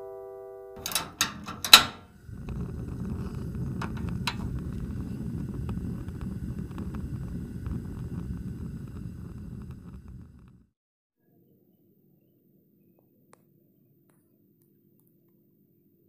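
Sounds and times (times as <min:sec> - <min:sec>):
low rumbling: 0:00.8 - 0:10.7.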